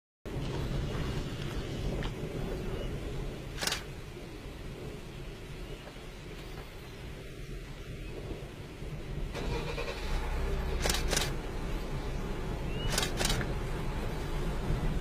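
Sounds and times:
quick double clicks: 10.8 - 11.4, 12.9 - 13.5.

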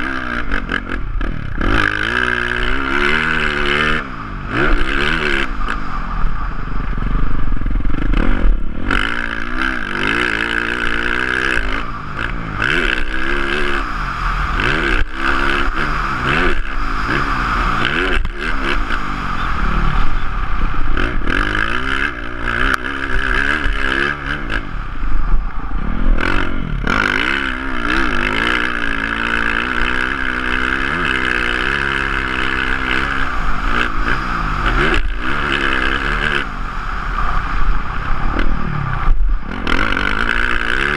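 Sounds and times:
dirt bike engine revving: 0.0 - 40.9
wind rush: 24.6 - 27.3.

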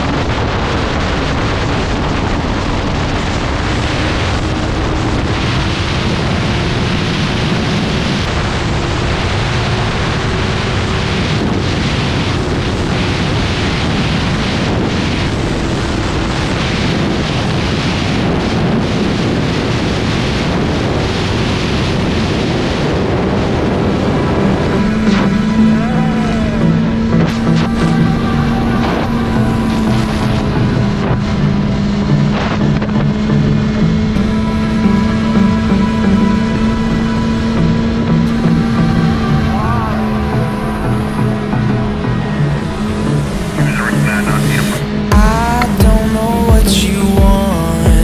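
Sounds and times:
wind buffeting microphone: 0.0 - 43.9
motorcycle engine running: 44.9 - 48.0.

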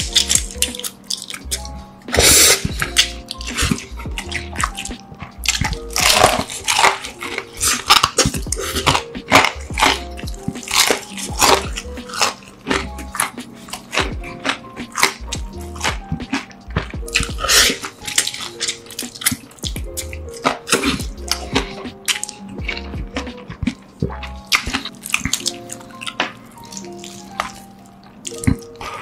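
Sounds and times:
background music with bass: 0.0 - 29.0
wet smacking chewing: 0.0 - 29.0
slurping noodles: 0.1 - 16.4.

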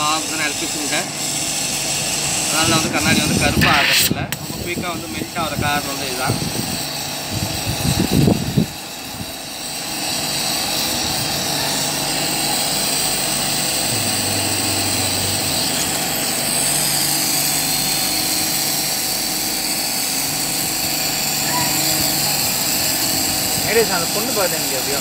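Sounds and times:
torch flame hissing: 0.0 - 25.0
low hum: 12.8 - 17.4.

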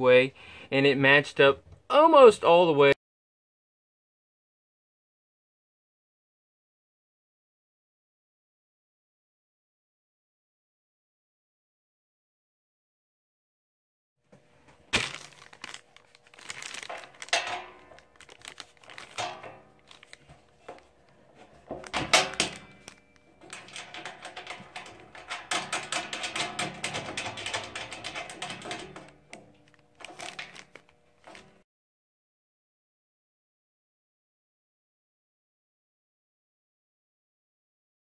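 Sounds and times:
plastic sheeting crinkling: 14.7 - 22.0, 29.6 - 31.6
metallic clicks and rattles: 15.5 - 31.6.

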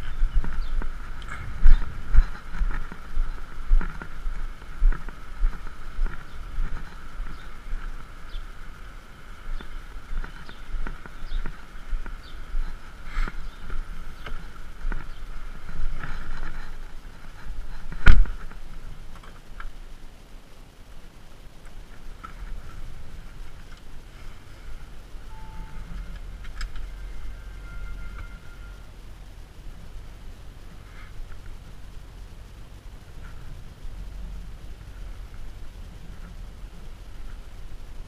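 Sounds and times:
footsteps on paving: 0.0 - 18.6
short beeps: 25.3 - 26.2, 26.8 - 28.9
electronic chime: 25.3 - 29.0.

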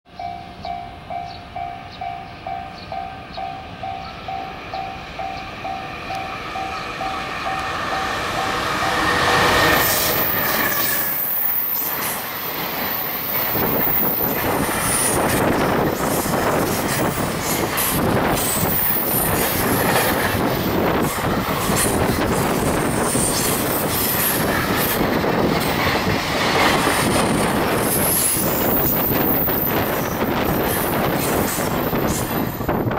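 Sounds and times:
locomotive passing: 0.2 - 32.9
high wheel squeals: 8.8 - 15.2.

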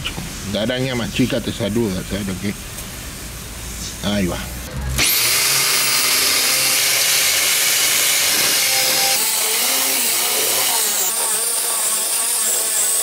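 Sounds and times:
pressure washer water jet hissing: 5.0 - 13.0.

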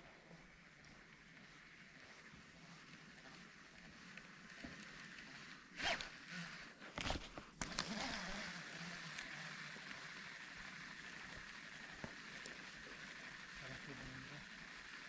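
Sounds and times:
fishing reel whirring: 0.0 - 15.0.

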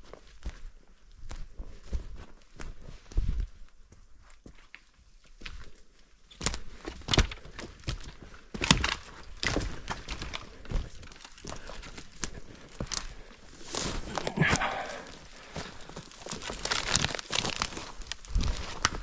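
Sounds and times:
footsteps crunching undergrowth: 0.0 - 19.0
twigs snapping: 8.5 - 19.0.

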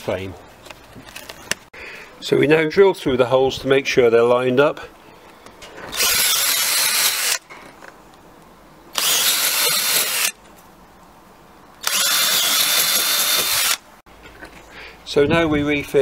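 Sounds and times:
cordless drill whining: 5.9 - 7.4, 9.0 - 10.4, 11.8 - 13.8.

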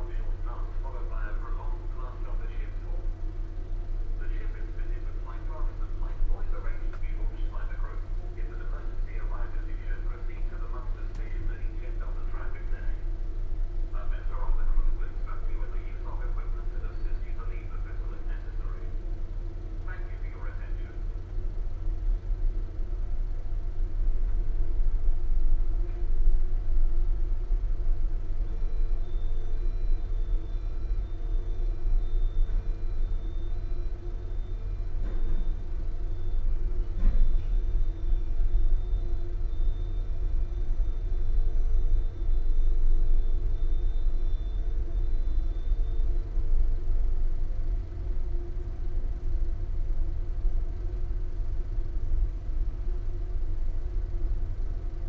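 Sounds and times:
engines rumbling: 0.0 - 52.2
faint high whine: 0.0 - 55.0
mid-pitched hum: 0.0 - 55.0.

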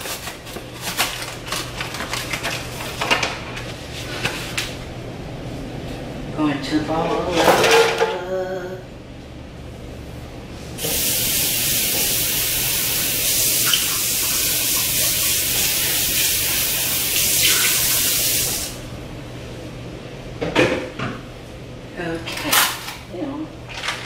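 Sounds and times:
faucet water spraying into sink: 10.8 - 18.8.

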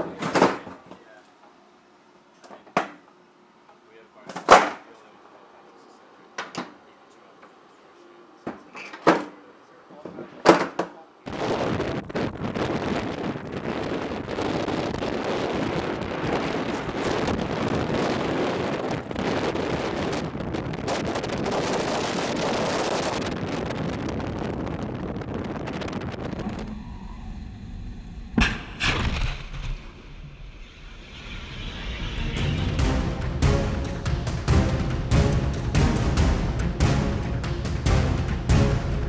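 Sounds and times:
wind buffeting microphone: 11.3 - 28.4
rocket motor roar: 25.2 - 33.5
sharp bangs: 28.3 - 39.0.

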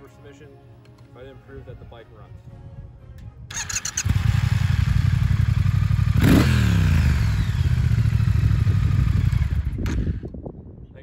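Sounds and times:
motorcycle engine idling and revving: 3.5 - 10.6.

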